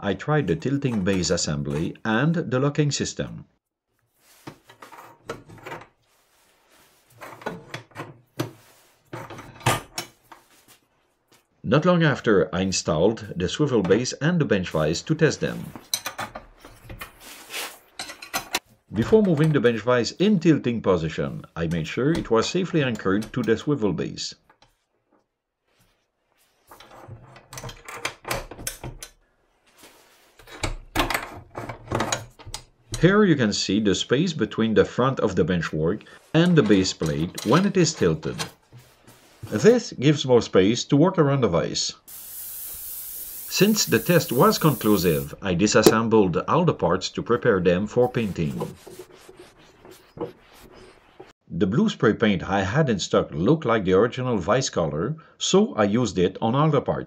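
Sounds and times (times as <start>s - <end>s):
short hiss: 42.1s - 45.3s.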